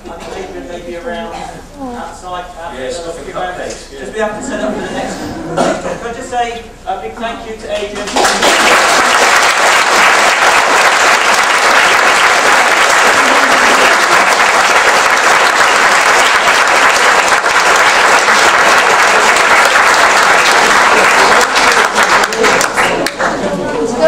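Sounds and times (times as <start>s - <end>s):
audience applauding: 8.0s - 23.5s.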